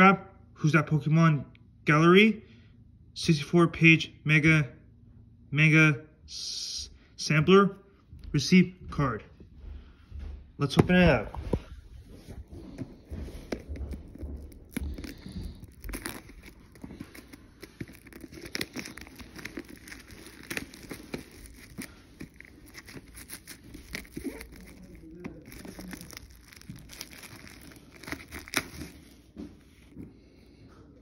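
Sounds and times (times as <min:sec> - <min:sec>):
plastic shrink-wrap tearing and crinkling: 0:13.3 - 0:29.9.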